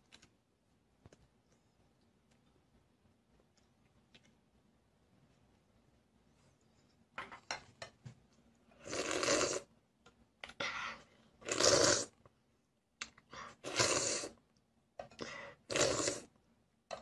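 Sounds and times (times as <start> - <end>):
child slurping porridge: 8.8 - 9.7, 11.0 - 12.2, 13.4 - 14.4, 15.2 - 16.3.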